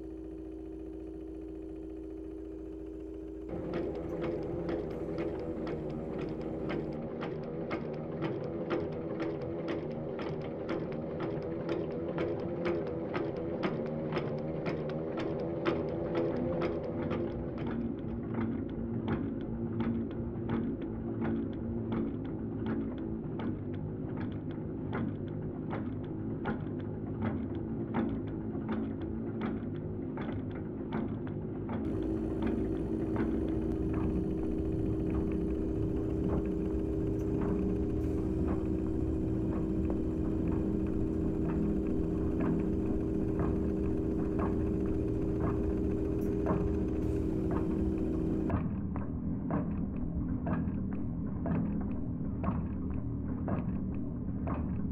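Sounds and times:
steady low hum: 0.0 - 20.9, 31.4 - 54.9
regular clicking: 31.8 - 48.6.

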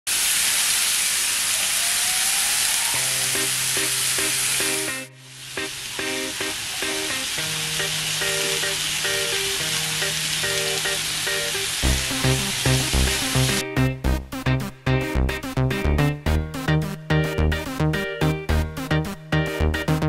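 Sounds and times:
chicken sizzling on grill pan: 0.1 - 13.6
background music: 3.0 - 20.0.

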